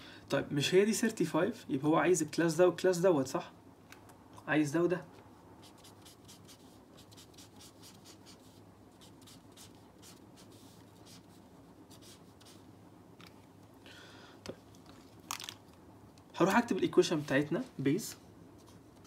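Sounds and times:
marker pen scratching on paper: 0:05.6 - 0:12.6.

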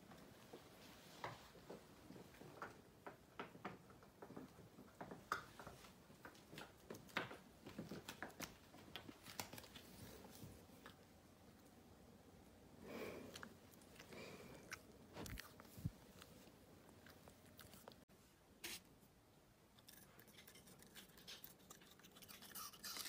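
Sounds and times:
puppy gnawing a chew bone: 0:13.2 - 0:18.1, 0:19.7 - 0:23.0.

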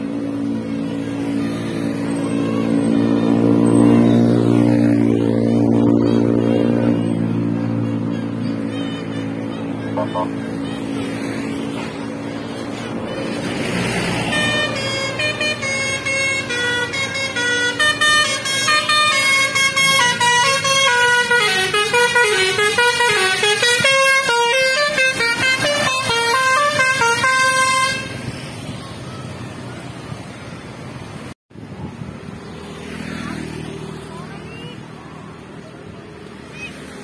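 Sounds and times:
traffic noise: 0:00.0 - 0:37.0
musical bus horn playing a tune: 0:01.4 - 0:28.3.

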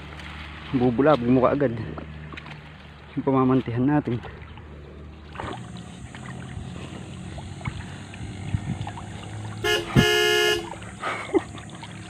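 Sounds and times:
horn honk: 0:09.6 - 0:10.8.

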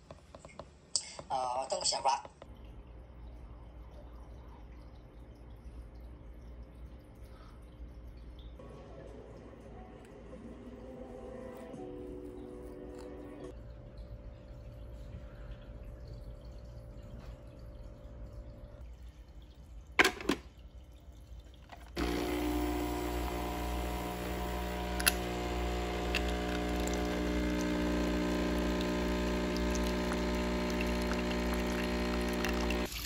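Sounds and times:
coffee machine pump humming: 0:21.7 - 0:33.0
espresso pouring into mug: 0:21.8 - 0:33.0.

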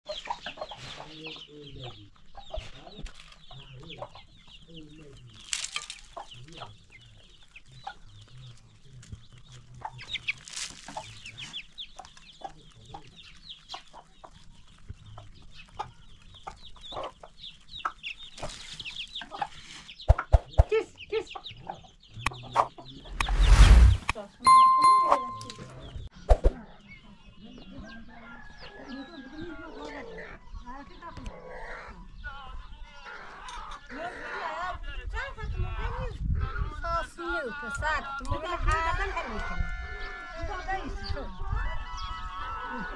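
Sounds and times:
chicks peeping: 0:00.1 - 0:05.4, 0:06.0 - 0:23.5
loud rushing noise: 0:23.1 - 0:24.1.

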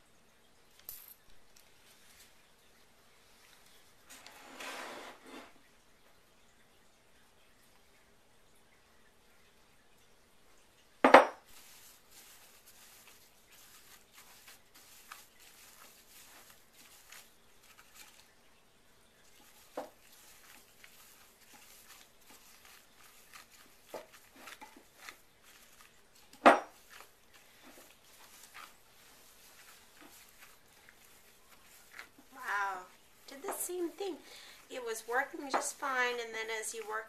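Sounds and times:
glass bowl knocking on wooden table: 0:11.0 - 0:11.4, 0:26.4 - 0:26.7
gloved hand kneading dough: 0:11.4 - 0:18.4, 0:19.2 - 0:37.0.

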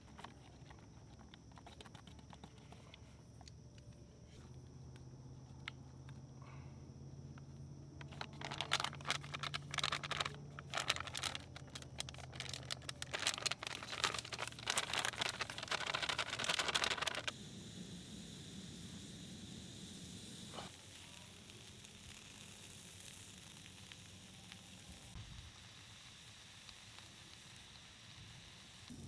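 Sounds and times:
plastic pouch crinkling: 0:00.0 - 0:03.5, 0:08.0 - 0:17.3.

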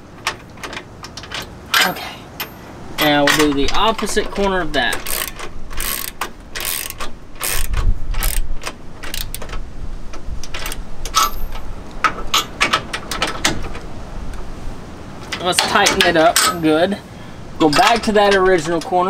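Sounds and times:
ratchet wrench clicking: 0:02.4 - 0:09.6.

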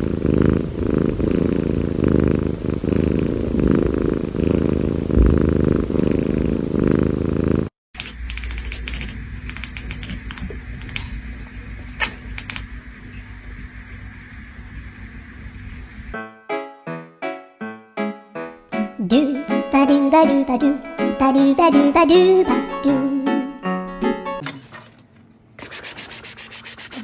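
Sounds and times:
cat purring loudly: 0:00.0 - 0:16.2.

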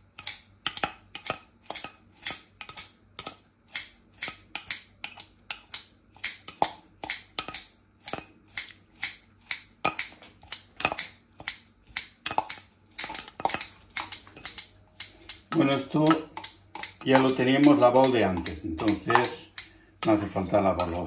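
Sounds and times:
knife chopping on cutting board: 0:00.2 - 0:21.0.

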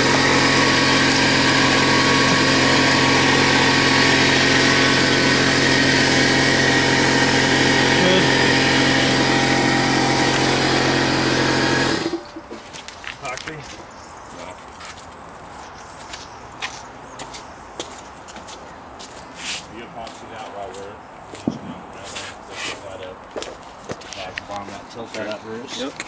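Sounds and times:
air compressor motor humming: 0:00.0 - 0:12.6.

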